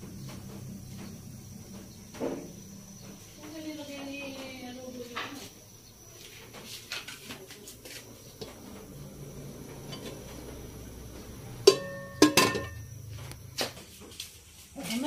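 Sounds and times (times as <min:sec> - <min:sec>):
gas burner rushing: 0:08.2 - 0:13.4
pot lid clanking on pot rim: 0:11.6 - 0:12.8.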